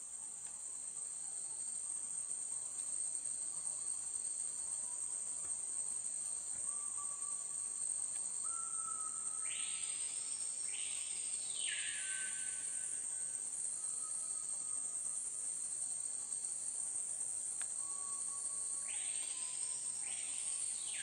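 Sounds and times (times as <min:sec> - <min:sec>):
faint sustained whistling notes: 0:06.5 - 0:15.5, 0:17.6 - 0:21.0.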